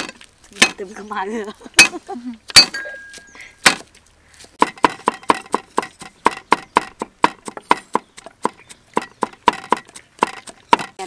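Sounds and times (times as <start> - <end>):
cleaver chopping on wooden block: 3.6 - 3.9, 4.6 - 11.0.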